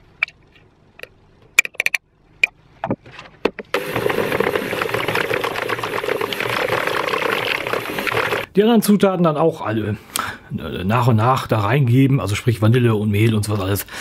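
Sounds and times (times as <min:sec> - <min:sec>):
sharp knocks and clicks: 0:01.0 - 0:05.7
electric hand mixer whisking: 0:03.8 - 0:08.5.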